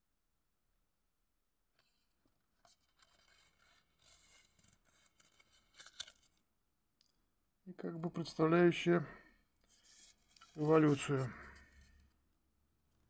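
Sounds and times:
paper leaflet rustling: 0:02.6 - 0:06.4, 0:09.7 - 0:12.1.

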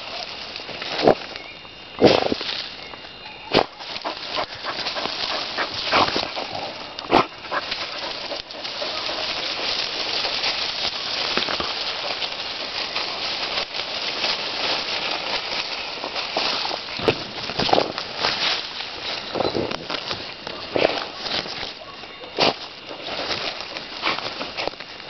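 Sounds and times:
leaves and twigs rustling: 0:00.0 - 0:25.0.

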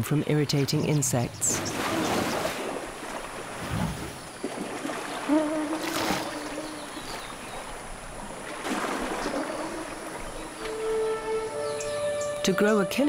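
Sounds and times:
water sloshing and splashing: 0:01.1 - 0:11.8
short splash: 0:01.5 - 0:10.2.

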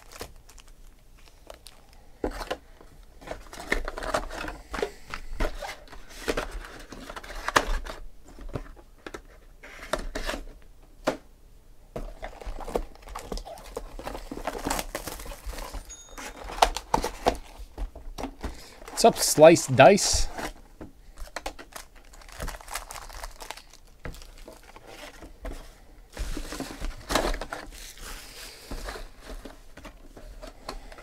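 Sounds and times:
foil wrappers crinkling and tearing: 0:00.0 - 0:02.5, 0:12.1 - 0:17.6, 0:21.2 - 0:25.3, 0:26.1 - 0:29.5.

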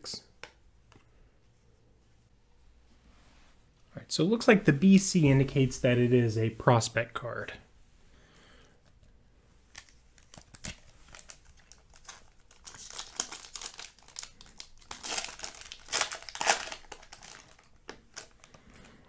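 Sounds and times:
foil wrapper crinkling and tearing: 0:09.7 - 0:19.0.

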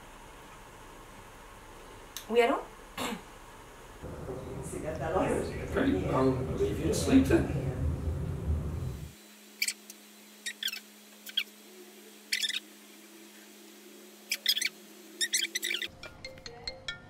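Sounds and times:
faint steady hum: 0:00.0 - 0:16.0
small bird chirping: 0:09.6 - 0:11.6, 0:12.3 - 0:12.7, 0:14.3 - 0:15.9.

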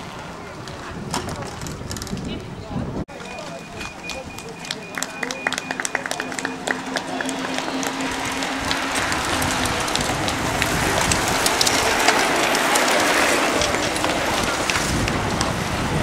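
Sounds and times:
bicycle chains clicking: 0:05.1 - 0:15.5
bicycle tyres hissing on asphalt: 0:07.3 - 0:16.0.

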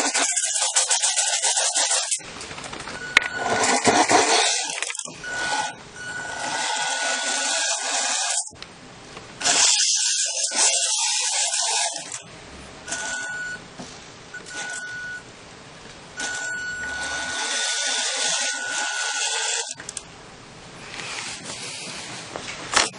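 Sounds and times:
model truck motor whirring: 0:03.2 - 0:08.5, 0:16.2 - 0:19.8.

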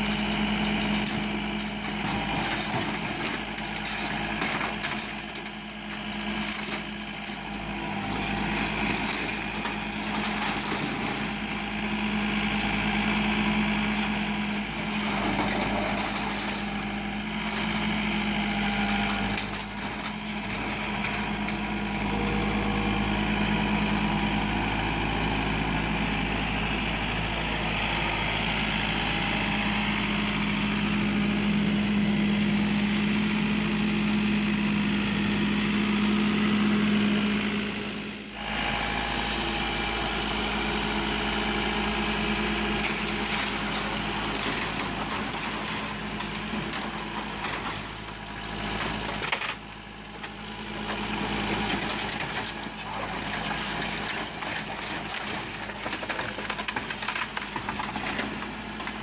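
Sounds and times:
scraping and clatter of metal: 0:00.0 - 0:11.7, 0:13.6 - 0:22.4, 0:42.7 - 0:59.0
tractor diesel engine running: 0:00.0 - 0:59.0.

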